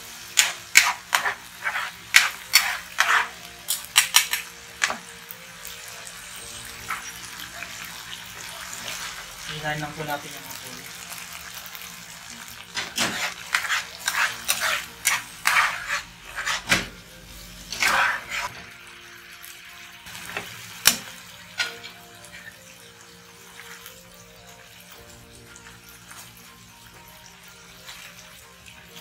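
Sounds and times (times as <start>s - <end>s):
faint background music: 0.0s - 29.0s
metal spatula scraping frying pan: 0.4s - 4.9s, 12.7s - 18.6s.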